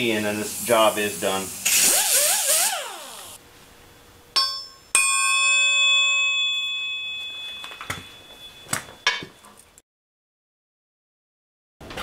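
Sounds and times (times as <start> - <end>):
steel struck and ringing: 4.4 - 9.4.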